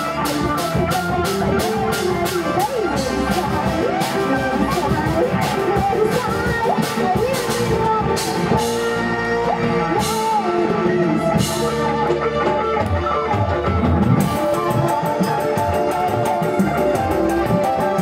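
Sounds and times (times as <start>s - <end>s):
live band playing: 0.0s - 18.0s
woman singing into a microphone: 0.0s - 18.0s.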